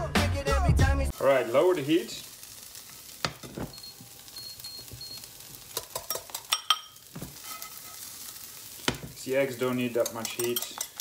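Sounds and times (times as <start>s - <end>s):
vegetables sizzling in a frying pan: 1.1s - 11.0s
utensils clinking on pan: 2.9s - 4.2s, 5.5s - 11.0s.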